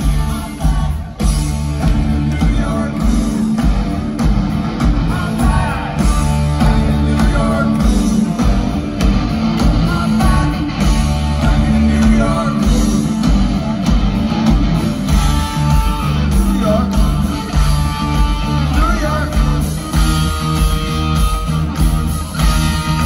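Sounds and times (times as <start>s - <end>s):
man singing lead vocal: 0.0s - 3.8s, 4.8s - 8.7s, 9.6s - 13.5s, 15.0s - 20.1s
live rock band playing: 0.0s - 23.0s.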